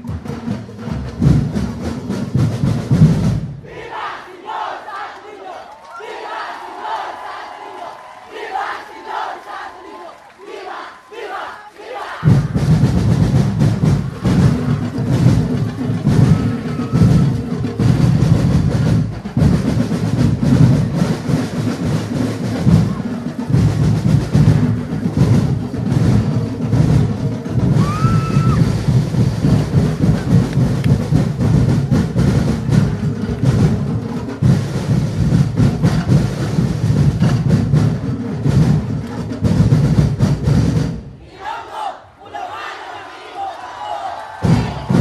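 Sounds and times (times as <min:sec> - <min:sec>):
massed drums beating fast: 0:00.0 - 0:04.0, 0:12.2 - 0:41.2, 0:44.4 - 0:45.0.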